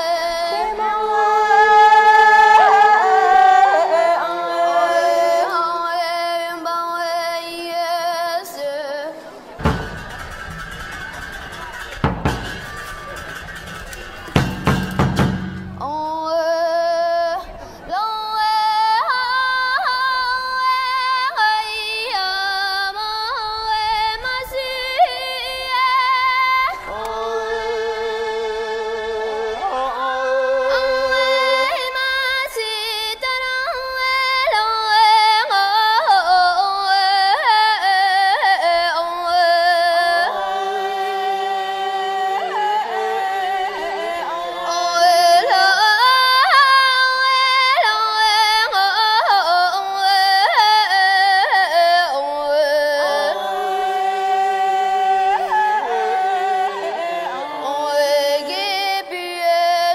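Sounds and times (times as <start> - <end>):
high voice singing opera: 0.0 - 10.0, 15.8 - 59.9.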